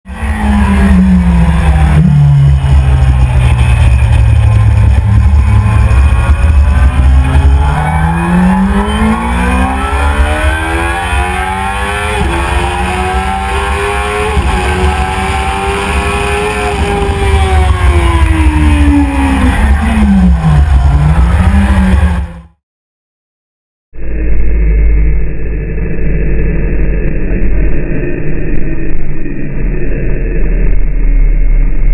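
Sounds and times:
motorcycle engine revving: 0.2 - 22.6.

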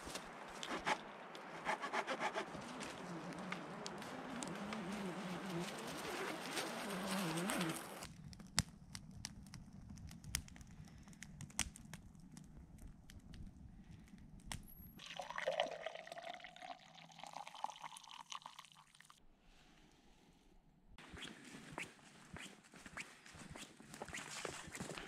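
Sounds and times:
campfire crackling and popping: 0.0 - 16.5
wavering low hum: 0.9 - 8.1
coffee pouring into a metal cup: 15.0 - 19.2.

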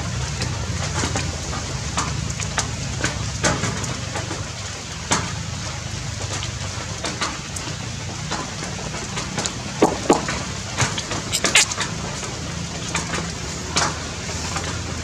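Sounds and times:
steady low rain rumble: 0.0 - 15.0
raindrop hits: 7.6 - 12.0.

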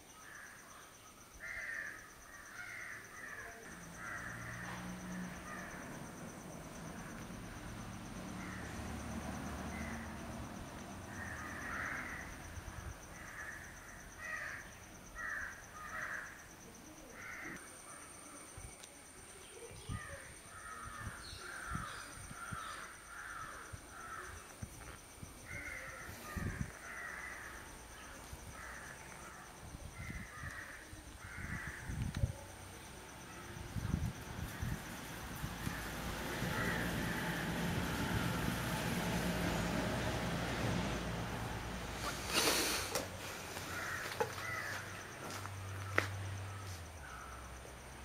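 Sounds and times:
crows cawing: 1.4 - 5.9, 8.4 - 8.7, 11.1 - 12.4, 13.2 - 16.4, 17.2 - 17.6, 20.6 - 24.4, 25.5 - 27.7, 28.6 - 31.9, 35.6 - 37.4, 43.5 - 47.3.

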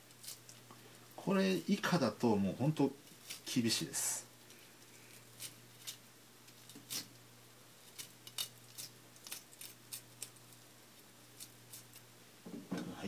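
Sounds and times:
knife scraping fish skin: 5.0 - 7.1, 7.8 - 10.4.

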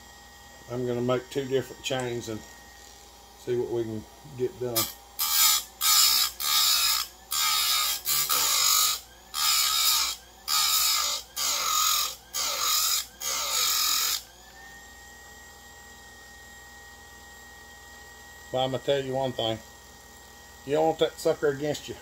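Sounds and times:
grinder motor hum: 0.0 - 22.0
chain grinder grinding: 4.7 - 14.2.

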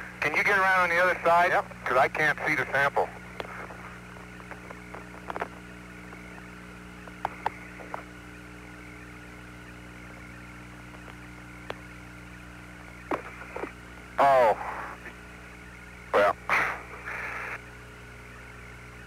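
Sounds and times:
low hum: 0.0 - 19.0
radio hiss: 0.0 - 19.0
short radio clicks: 13.0 - 13.8.

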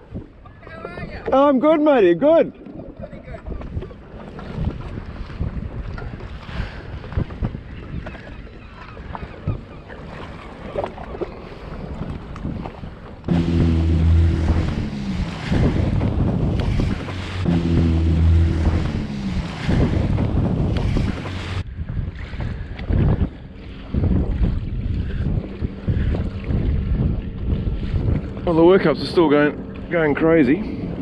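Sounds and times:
water slapping around jet ski: 0.0 - 31.0
wind buffeting microphone: 2.5 - 31.0
low hum dropping in pitch: 13.3 - 21.6.

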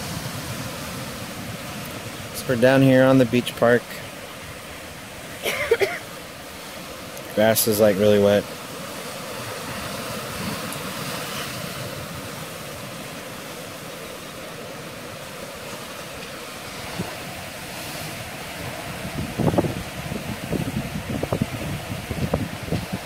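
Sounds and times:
wind buffeting microphone: 0.0 - 2.5, 14.9 - 23.0
surf breaking on rocks: 0.0 - 23.0.

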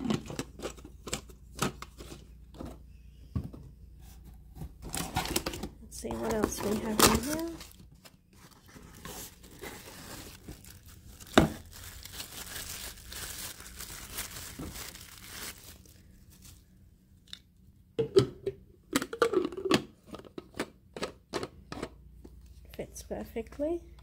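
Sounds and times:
plastic bag crinkling and tearing: 4.9 - 16.7.

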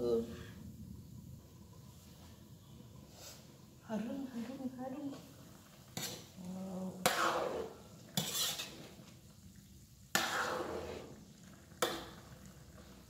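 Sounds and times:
food sizzling in a wok: 2.6 - 13.0.

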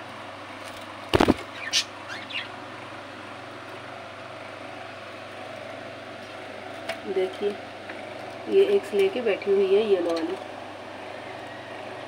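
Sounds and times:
faint background hum: 0.0 - 12.0
high bird chirp: 1.5 - 2.5.

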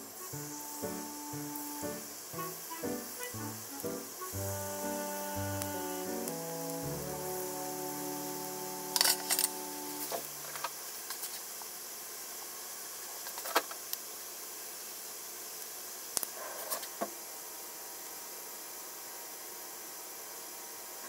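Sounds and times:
slices sizzling in oil: 0.0 - 12.6.

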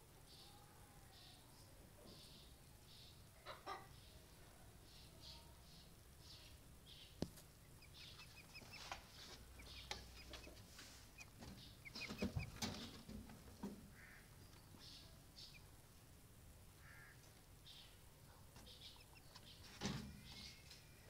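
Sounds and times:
chickens clucking: 2.0 - 6.4, 7.2 - 15.8, 18.3 - 20.9.

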